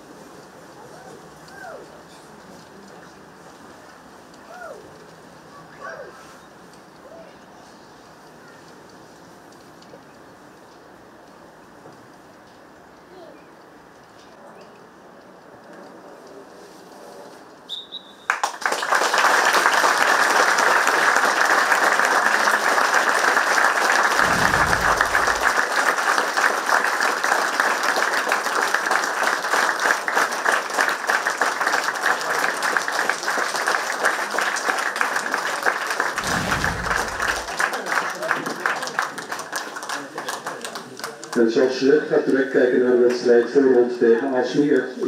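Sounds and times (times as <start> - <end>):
crowd applause: 18.4 - 40.4
hushed crowd: 20.6 - 26.4, 31.8 - 41.1.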